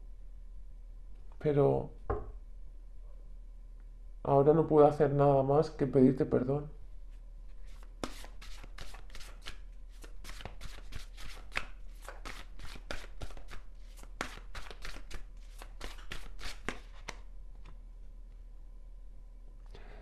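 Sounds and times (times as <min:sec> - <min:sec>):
cards being shuffled: 0:07.5 - 0:17.8.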